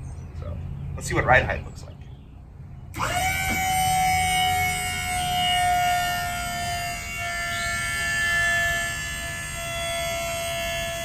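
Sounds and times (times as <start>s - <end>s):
electric pump whining: 2.9s - 11.0s.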